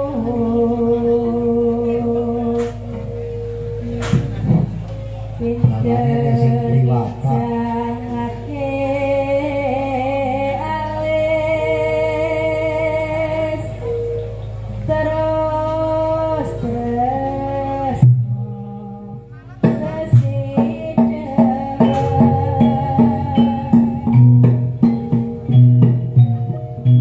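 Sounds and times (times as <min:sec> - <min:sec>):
gamelan ensemble accompaniment: 0:00.0 - 0:08.5, 0:10.5 - 0:27.0
plucked notes: 0:01.3 - 0:08.8, 0:10.7 - 0:27.0
woman singing ornamented melody: 0:19.8 - 0:25.2.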